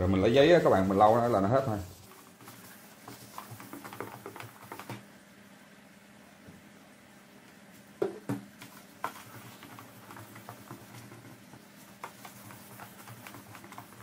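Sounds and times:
tissue rubbing plastic sheet: 0.3s - 4.0s
plastic bottle knocking on wooden table: 8.0s - 8.5s.

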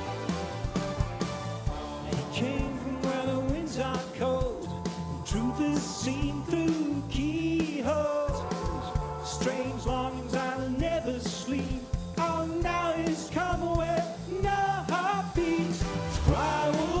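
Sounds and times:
live new wave band: 0.0s - 17.0s
man singing: 2.0s - 17.0s.

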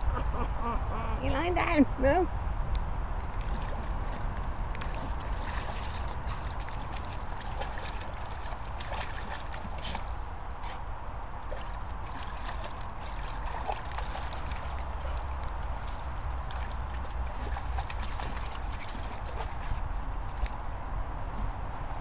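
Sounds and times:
dog splashing in water: 3.4s - 20.4s.

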